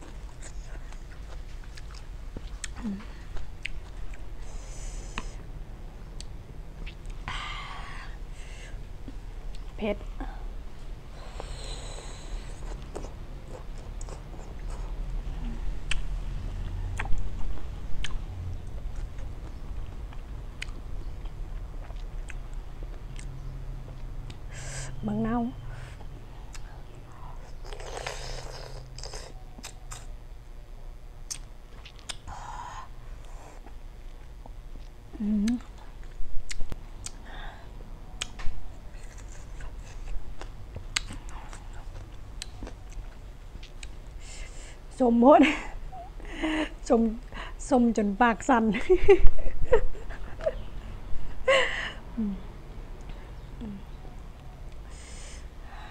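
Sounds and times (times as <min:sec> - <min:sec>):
close chewing of shrimp: 0:00.0 - 0:04.4, 0:11.4 - 0:15.2, 0:18.0 - 0:24.5, 0:38.2 - 0:44.2
mouth clicks and smacks: 0:31.3 - 0:32.3, 0:34.4 - 0:37.2
wet mouth clicks: 0:31.3 - 0:32.3.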